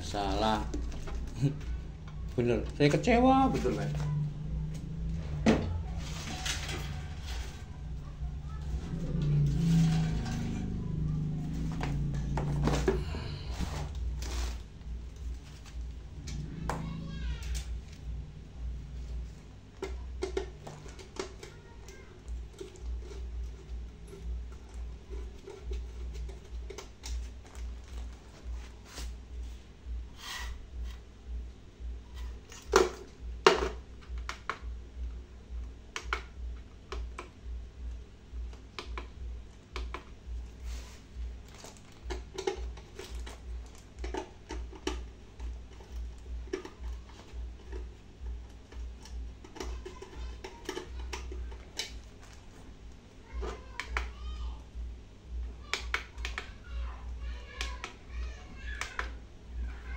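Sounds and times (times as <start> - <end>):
low pulsing hum: 0.0 - 36.6.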